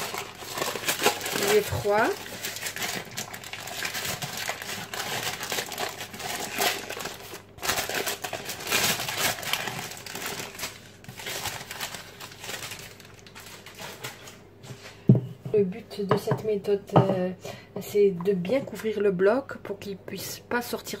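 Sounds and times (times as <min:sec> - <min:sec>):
baking paper crinkling: 0:00.0 - 0:14.9.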